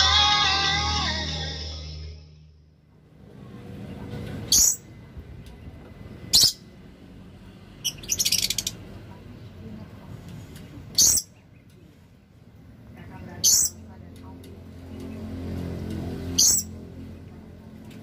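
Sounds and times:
lovebirds shrill calls: 0:04.5 - 0:04.8, 0:07.8 - 0:08.8, 0:16.4 - 0:16.7.

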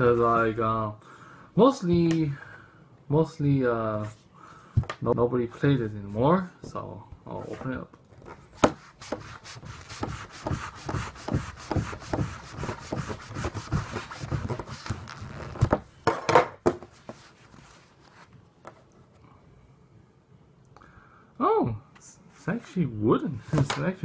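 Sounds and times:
knife sawing into wood: 0:09.0 - 0:14.6
faint handling sounds: 0:16.8 - 0:19.5.

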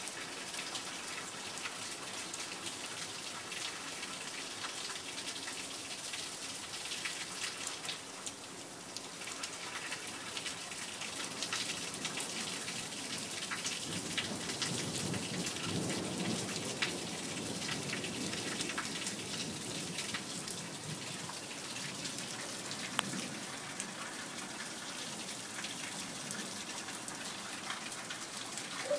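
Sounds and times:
steady rain falling: 0:00.0 - 0:28.9
sharp raindrop clicks: 0:22.8 - 0:23.2.

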